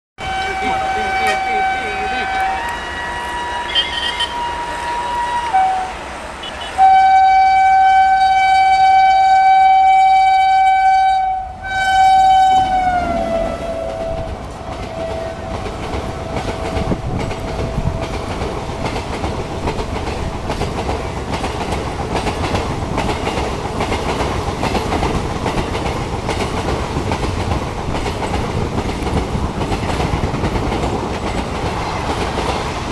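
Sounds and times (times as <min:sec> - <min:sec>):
train coaches rumbling: 0:00.2 - 0:10.6, 0:11.4 - 0:32.9
locomotive horn blasts: 0:00.2 - 0:15.7.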